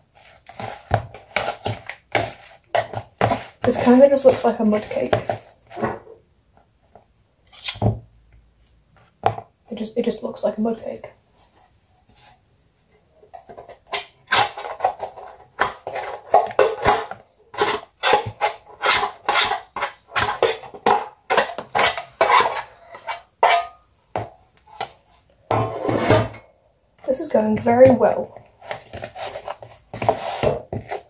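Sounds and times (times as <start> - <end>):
spoon scraping and knocking on tins: 0.2 - 6.1, 13.3 - 26.4, 27.6 - 31.0.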